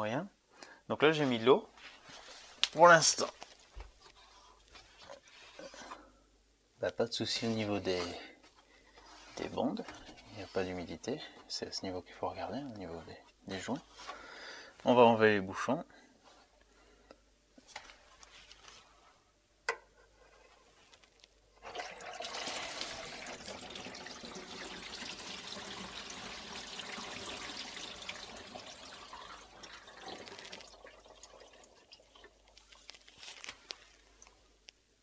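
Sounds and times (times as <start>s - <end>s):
water draining from sink: 21.6s - 32.5s
water trickling and dripping: 21.7s - 32.9s.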